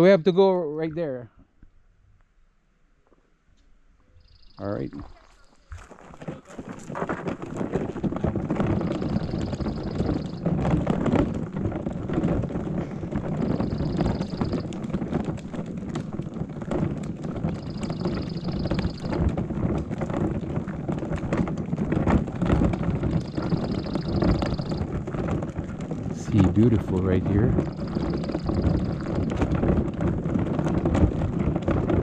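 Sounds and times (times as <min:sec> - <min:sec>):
wind buffeting microphone: 0:04.2 - 0:32.0
scuffs and knocks: 0:05.0 - 0:32.0.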